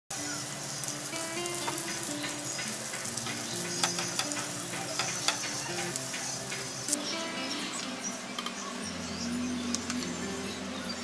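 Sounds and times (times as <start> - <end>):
food sizzling in frying pan: 0.1 - 11.0
soft background music: 0.1 - 11.0
spatula clicking against pan: 2.6 - 6.7.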